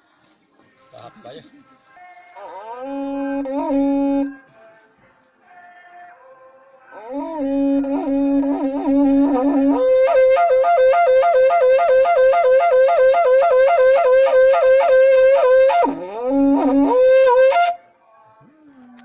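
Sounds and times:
horn blown in pulsing notes: 2.4s - 4.4s, 6.9s - 17.8s.

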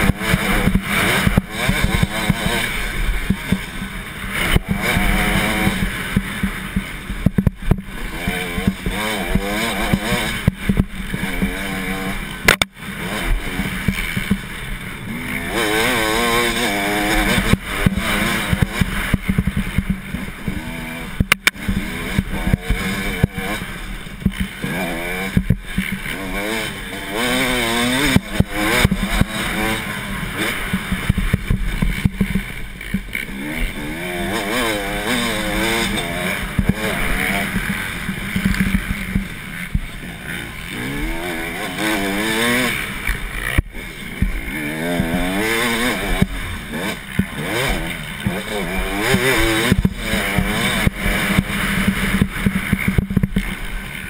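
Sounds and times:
motocross bike engine revving: 0.0s - 54.0s
sharp knocks: 21.2s - 21.8s.

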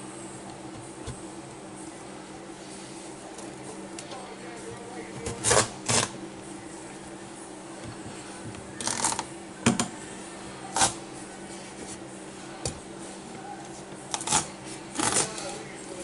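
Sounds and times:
knife scraping squash rind: 5.4s - 6.2s, 14.1s - 15.5s.

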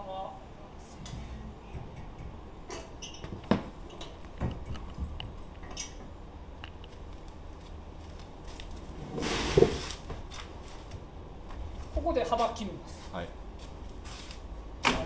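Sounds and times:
board sliding: 9.0s - 10.1s.

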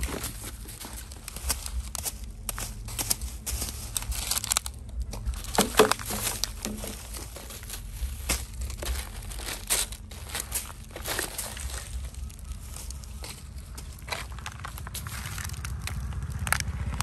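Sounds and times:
plastic bags crinkling: 0.0s - 16.7s.

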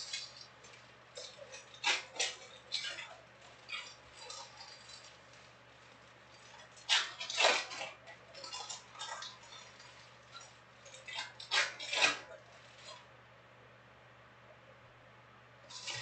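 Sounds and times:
foil wrappers crinkling: 0.0s - 13.0s, 15.7s - 16.0s.

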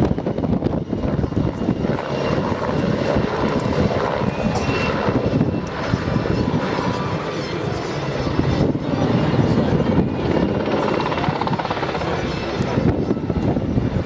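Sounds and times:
helicopter rotor chopping: 0.0s - 14.0s.

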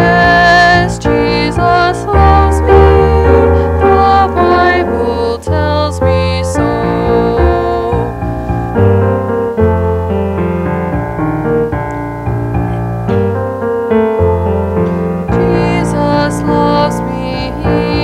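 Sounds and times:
woman singing: 0.0s - 8.2s, 15.3s - 18.0s
piano playing sustained chords: 0.0s - 18.0s.

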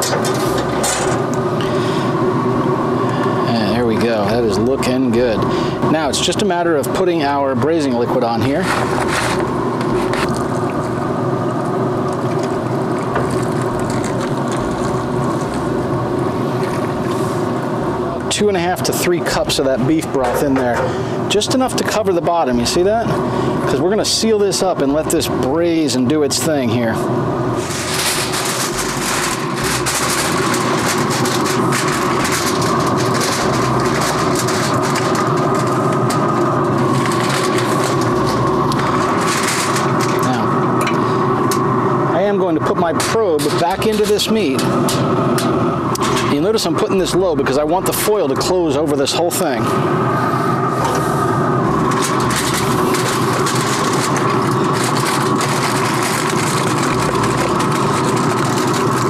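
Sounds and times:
machine-like hum: 0.0s - 59.0s
aluminium foil crinkling: 7.3s - 17.2s, 27.5s - 41.7s, 42.7s - 46.4s, 51.7s - 59.0s.

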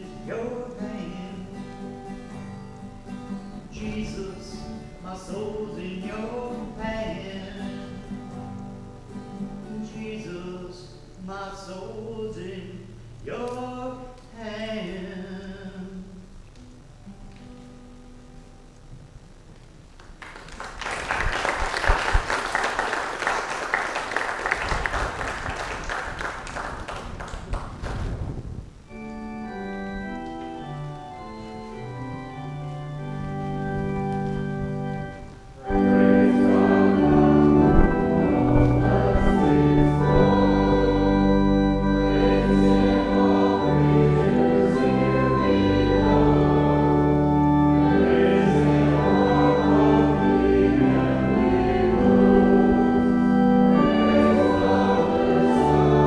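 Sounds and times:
organ playing sustained chords: 0.0s - 19.4s, 28.8s - 56.0s
congregation applauding: 20.0s - 28.2s.

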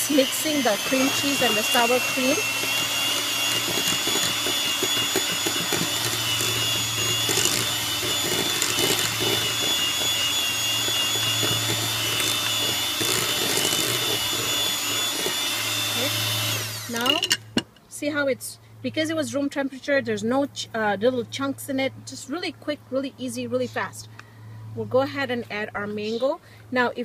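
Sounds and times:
electric hand mixer whining: 0.0s - 17.4s.

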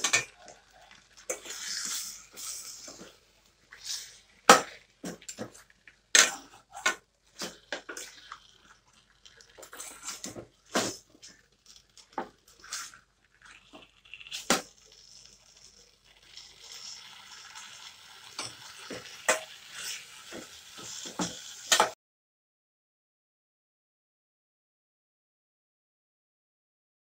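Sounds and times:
wet food squelching: 0.2s - 20.1s.

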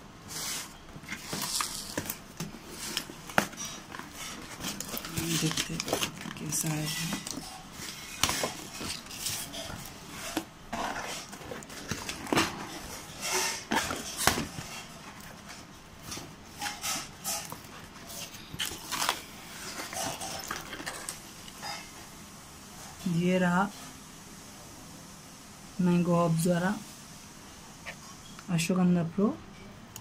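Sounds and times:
packing paper rustling: 0.3s - 21.5s.

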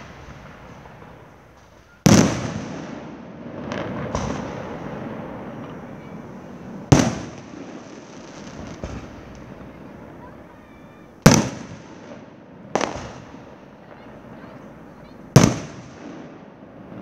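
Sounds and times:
firework crackling: 0.0s - 17.0s
firework shells bursting: 10.7s - 14.0s.

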